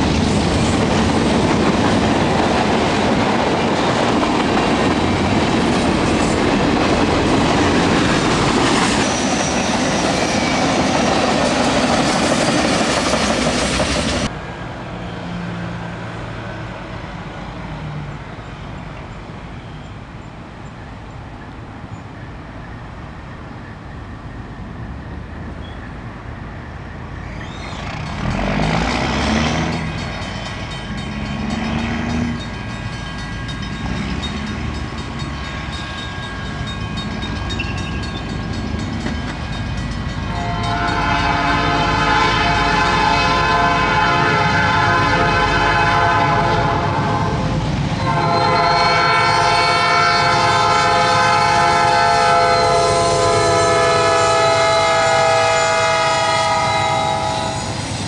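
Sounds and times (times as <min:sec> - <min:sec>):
diesel locomotive rumbling: 0:00.0 - 0:58.0
locomotive air horn: 0:40.3 - 0:57.8.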